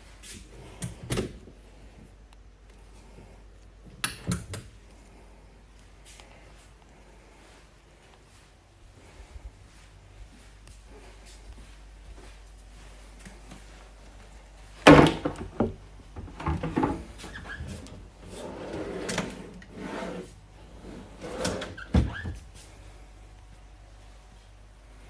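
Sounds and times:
drawer opening and shutting: 0:14.9 - 0:20.3, 0:21.1 - 0:22.4.

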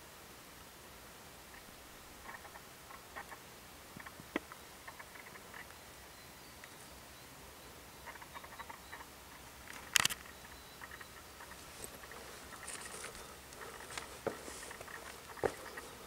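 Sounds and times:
footsteps crunching on sandy path: 0:11.5 - 0:16.0.

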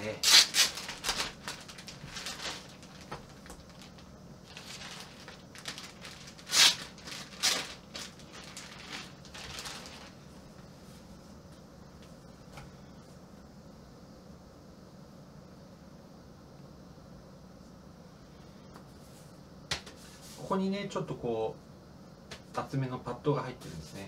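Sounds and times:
plastic bag crinkling: 0:00.0 - 0:10.3.

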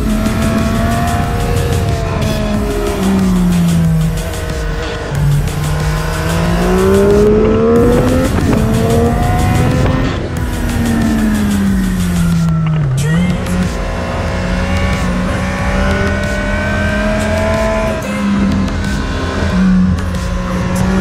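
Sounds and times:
motorcycle engine accelerating: 0:00.0 - 0:21.0
wind rush on microphone: 0:06.7 - 0:10.8.

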